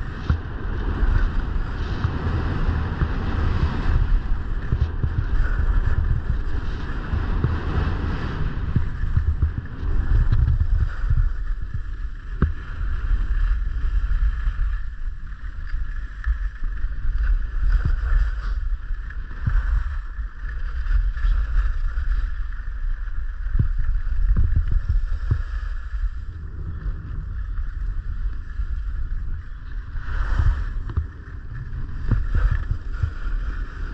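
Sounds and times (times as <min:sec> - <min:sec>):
wind buffeting microphone: 0:00.0 - 0:33.9
skis hissing on snow: 0:17.2 - 0:22.4, 0:24.8 - 0:26.2, 0:29.7 - 0:30.9.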